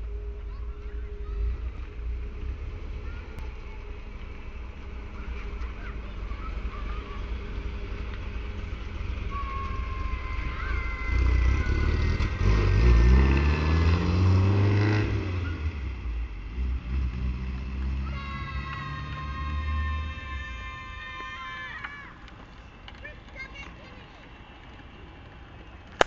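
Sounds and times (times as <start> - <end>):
car engine revving: 0.0 - 21.0
children shrieking: 9.2 - 12.9, 18.0 - 22.3.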